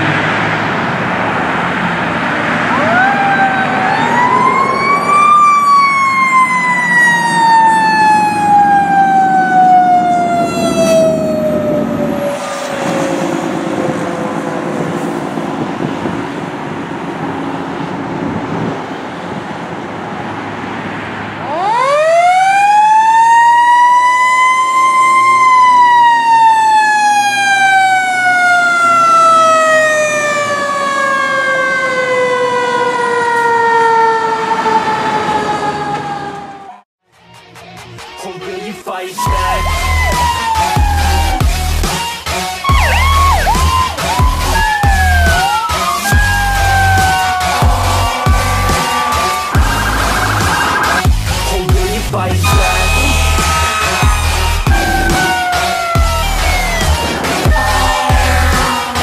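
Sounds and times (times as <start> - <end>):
fire engine siren wailing: 0.0 - 36.9, 39.2 - 59.0
traffic: 0.0 - 59.0
engine rumble: 42.7 - 59.0.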